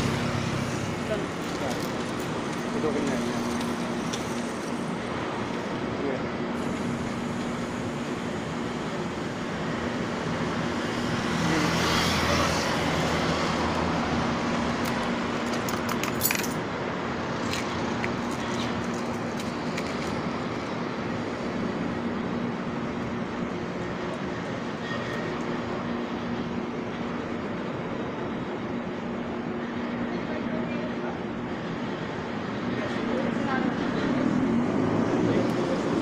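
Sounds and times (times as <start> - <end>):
vehicle passing: 0.0 - 1.7
road traffic hum: 0.0 - 36.0.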